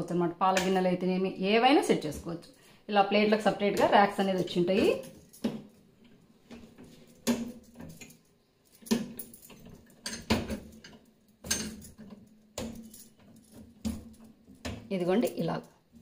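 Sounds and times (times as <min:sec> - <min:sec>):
wire dish rack clanking and rattling: 0:06.5 - 0:14.9.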